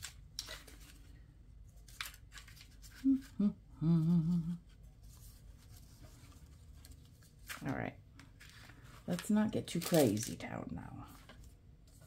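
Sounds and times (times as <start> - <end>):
paper rustling: 0.0 - 3.4, 4.7 - 12.0
woman humming: 3.0 - 4.7.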